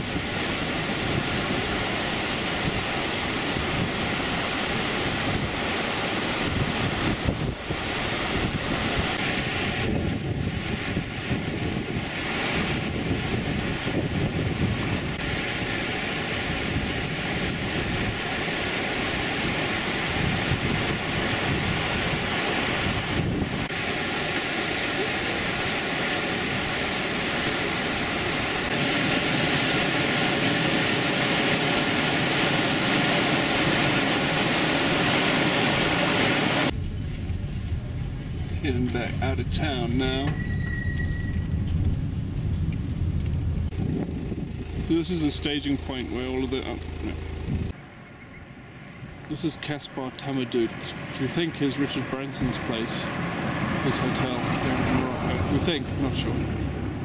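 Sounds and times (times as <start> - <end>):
rushing hissing noise: 0.0 - 37.4.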